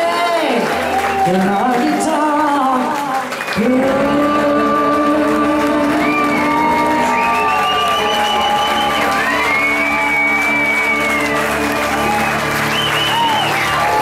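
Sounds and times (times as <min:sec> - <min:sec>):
woman singing into a microphone: 0:00.0 - 0:07.6
electric guitar: 0:00.0 - 0:14.0.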